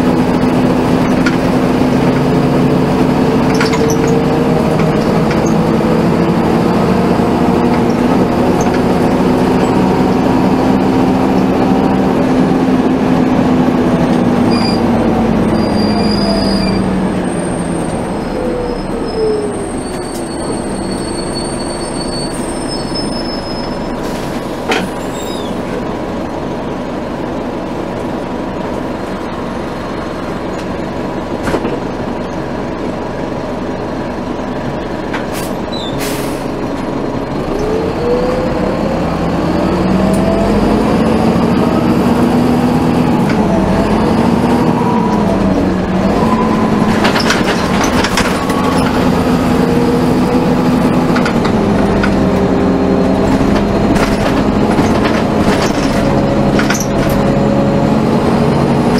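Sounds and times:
bus accelerating whine: 0.0 - 58.9
bus engine rumble: 0.0 - 58.9
knocks and rattles: 46.8 - 49.1, 53.3 - 57.2.

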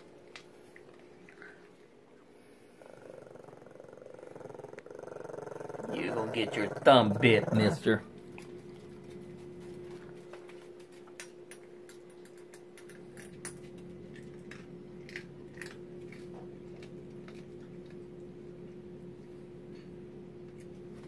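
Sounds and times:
steady low hum: 0.0 - 21.0
dogs crunching kibble: 5.7 - 21.0.

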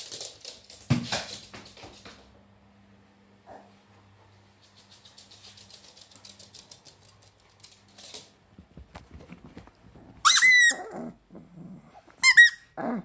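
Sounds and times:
dog claws clicking on floor: 0.0 - 2.3, 4.6 - 9.8
high-pitched squeak: 10.2 - 10.9, 12.2 - 12.7.

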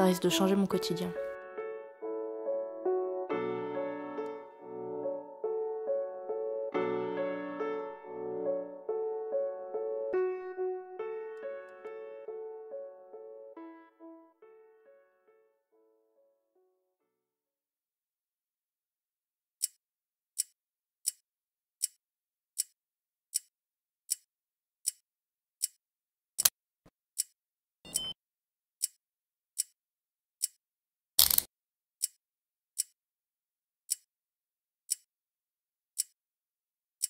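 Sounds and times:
clock ticking: 19.6 - 19.8, 20.4 - 21.2, 21.8 - 22.0, 22.6 - 23.5, 24.1 - 25.0, 28.8 - 29.0, 29.6 - 29.8, 30.4 - 30.6, 32.0 - 32.2, 32.8 - 33.0, 33.9 - 34.1, 34.9 - 35.1, 35.9 - 36.2.

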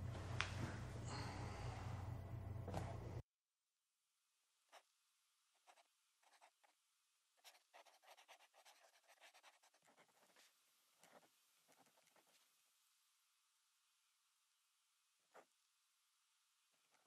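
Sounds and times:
pen scratching on paper: 5.6 - 6.8, 7.4 - 12.5.

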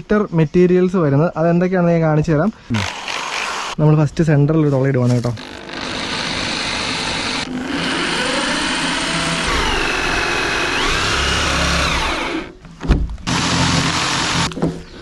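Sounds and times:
electric drill hole saw cutting plastic: 2.7 - 3.8, 5.4 - 12.6, 13.3 - 14.6.

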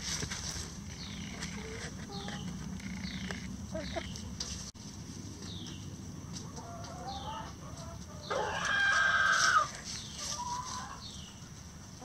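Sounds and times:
hens clucking: 0.8 - 4.6, 6.2 - 12.0.

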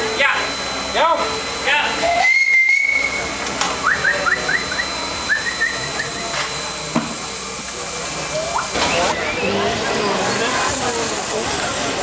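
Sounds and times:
steam hissing: 0.0 - 12.0
high whistle tone: 1.4 - 6.9.

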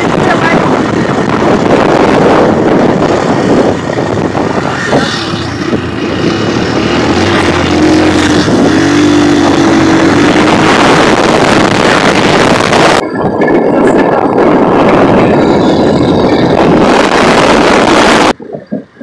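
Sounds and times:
motorcycle engine running: 0.0 - 18.4
wind buffeting microphone: 0.0 - 19.0.

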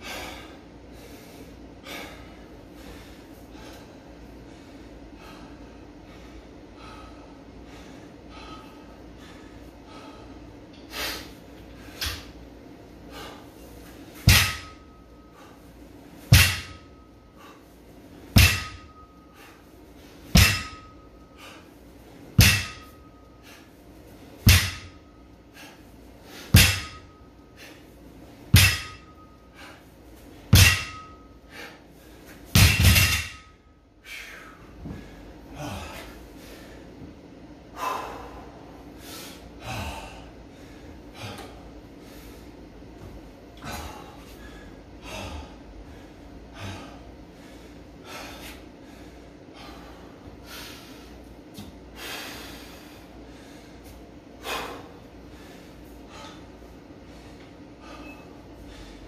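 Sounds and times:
hard breathing: 0.0 - 28.0, 28.6 - 37.1, 37.7 - 42.7, 43.6 - 51.3, 51.9 - 59.0
barbell dropped and bouncing: 14.2 - 14.8, 16.3 - 16.8, 18.4 - 18.9, 20.4 - 20.9, 22.4 - 23.0, 24.5 - 24.9, 26.6 - 27.1, 28.6 - 29.1, 30.6 - 31.2, 32.6 - 33.6
barbell thudding on rubber mat: 14.2 - 14.8, 16.3 - 16.9, 18.4 - 19.0, 20.3 - 20.9, 22.4 - 23.0, 24.4 - 25.0, 26.5 - 27.1, 28.5 - 29.1, 30.5 - 31.2, 32.5 - 33.5
metallic ring of weight plates: 18.4 - 19.6, 20.4 - 21.3, 22.4 - 23.4, 28.6 - 29.8, 30.6 - 31.4, 32.6 - 33.6.

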